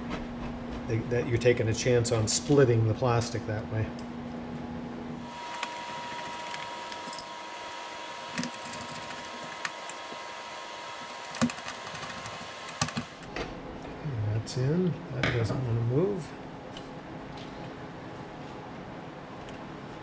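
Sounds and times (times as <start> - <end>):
faint high whine: 5.2 - 13.3.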